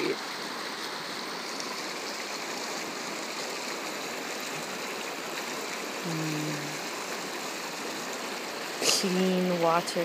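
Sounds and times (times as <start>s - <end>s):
creek rushing over rocks: 0.0s - 10.0s
person humming: 6.0s - 6.8s.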